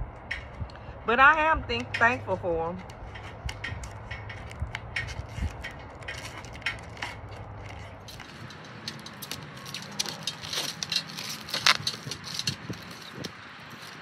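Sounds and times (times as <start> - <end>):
plastic film crinkling: 3.9 - 14.0.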